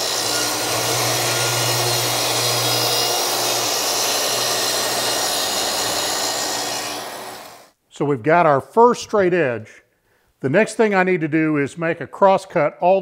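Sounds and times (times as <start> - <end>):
track saw cutting plywood: 0.0 - 7.7.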